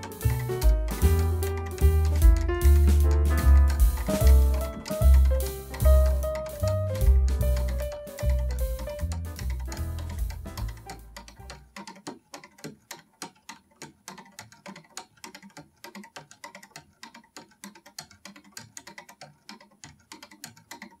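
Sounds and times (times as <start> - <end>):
background music: 0.0 - 11.8
clock escapement clicking: 0.0 - 21.0.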